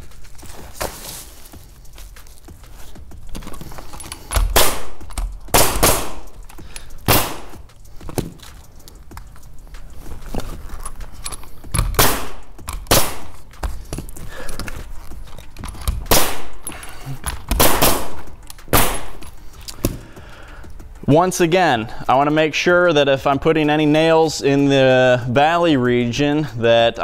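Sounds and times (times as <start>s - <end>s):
pneumatic nailer shots: 4.1s - 7.6s, 11.7s - 13.4s, 15.8s - 16.7s, 17.4s - 19.2s.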